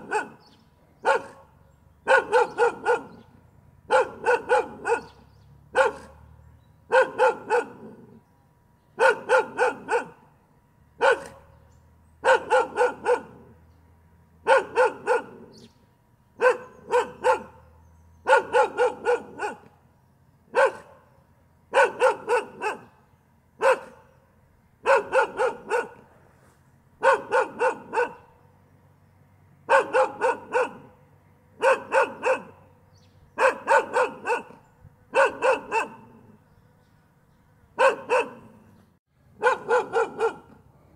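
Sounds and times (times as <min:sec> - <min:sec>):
dog barking: 0:00.0 - 0:03.3, 0:03.9 - 0:06.3, 0:06.9 - 0:08.2, 0:09.0 - 0:10.2, 0:11.0 - 0:11.6, 0:12.2 - 0:13.6, 0:14.4 - 0:15.6, 0:16.4 - 0:19.7, 0:20.5 - 0:21.1, 0:21.7 - 0:23.0, 0:23.6 - 0:24.1, 0:24.8 - 0:26.1, 0:27.0 - 0:28.3, 0:29.7 - 0:31.0, 0:31.6 - 0:32.6, 0:33.4 - 0:36.4, 0:37.8 - 0:38.6, 0:39.4 - 0:40.6.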